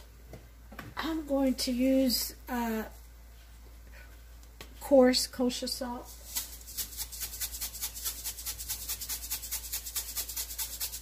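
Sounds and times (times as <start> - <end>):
salt rattling in shaker: 6.0 - 11.0.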